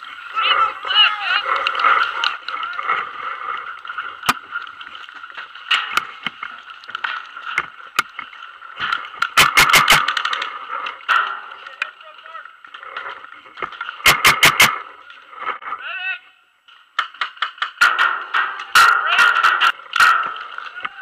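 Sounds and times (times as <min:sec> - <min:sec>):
paintball markers firing: 0:09.3 - 0:10.2, 0:14.0 - 0:14.8.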